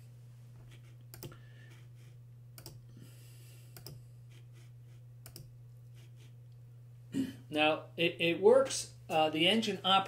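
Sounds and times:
low electrical hum: 0.0 - 10.0
computer mouse clicks: 0.7 - 1.4, 2.6 - 2.8, 3.8 - 4.4, 5.2 - 5.5.

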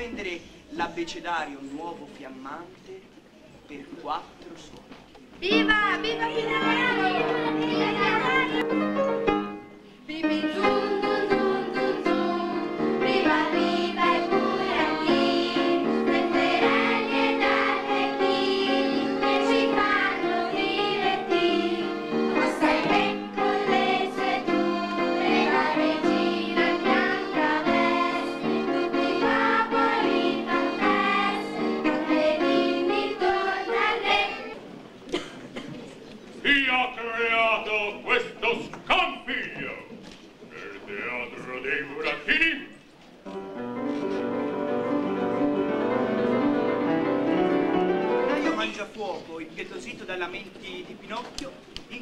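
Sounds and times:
musical accompaniment: 5.5 - 34.7, 43.3 - 48.8
children singing: 6.5 - 8.7, 10.1 - 34.7.

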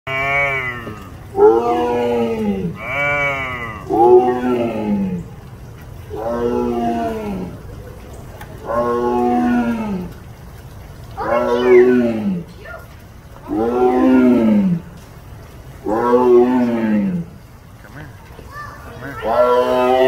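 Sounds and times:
tiger roaring: 0.1 - 5.4, 6.1 - 7.6, 8.6 - 10.1, 13.5 - 14.9, 15.8 - 17.4, 19.2 - 20.0.

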